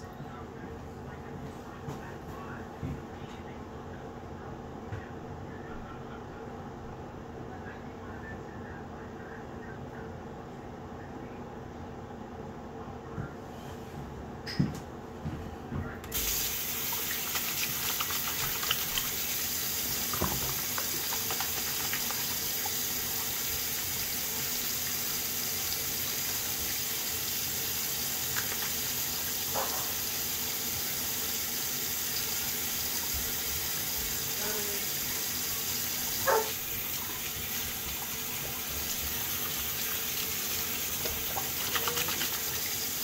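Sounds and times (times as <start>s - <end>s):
hands washing with splashes: 16.1s - 24.2s, 28.1s - 29.2s, 35.3s - 43.0s
tap water running into basin: 16.1s - 43.0s.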